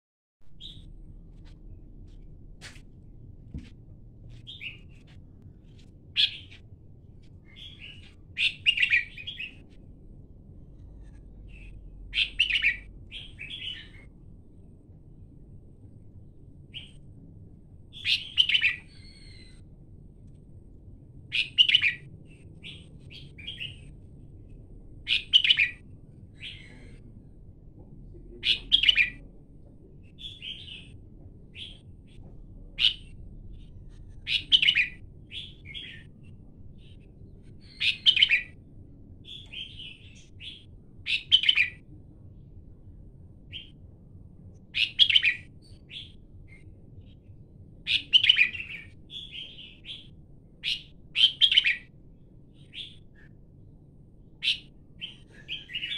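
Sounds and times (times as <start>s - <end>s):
soft bird chirps: 0.5s - 2.2s, 4.3s - 6.6s, 7.4s - 9.8s, 10.8s - 14.1s, 18.0s - 19.6s, 25.1s - 27.0s, 30.0s - 38.6s, 39.2s - 41.9s, 54.4s - 55.9s
bird song phrases: 0.6s - 0.9s, 7.5s - 9.6s, 11.0s - 14.1s, 18.0s - 19.6s, 25.1s - 27.1s, 28.0s - 38.6s, 39.2s - 41.9s, 47.9s - 51.9s, 54.4s - 55.9s.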